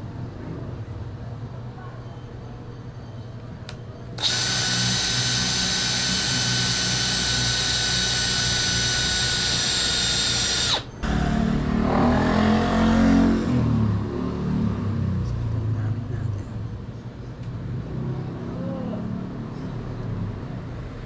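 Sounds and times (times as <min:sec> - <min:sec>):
cordless drill boring wood: 0:04.2 - 0:11.0.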